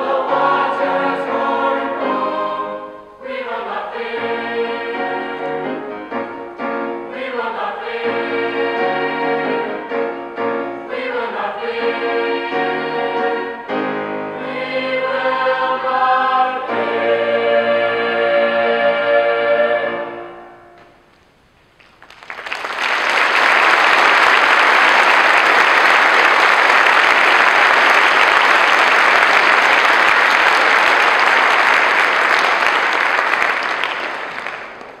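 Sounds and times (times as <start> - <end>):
choir holding a chord: 0.0 - 21.0
audience applauding: 21.8 - 35.0.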